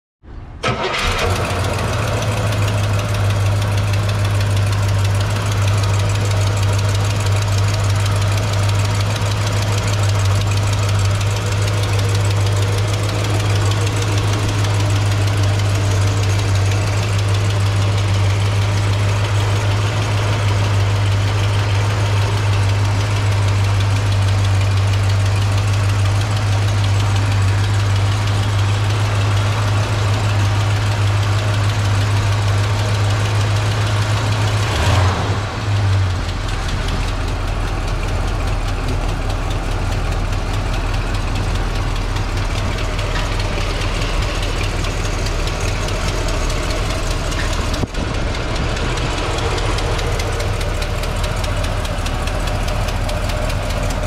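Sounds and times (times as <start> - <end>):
car engine idling: 0.4 - 54.0.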